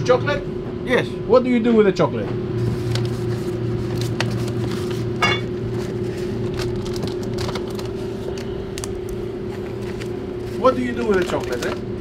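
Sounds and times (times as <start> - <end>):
low machinery hum: 0.0 - 12.0
packets rustling and knocking: 3.9 - 11.8.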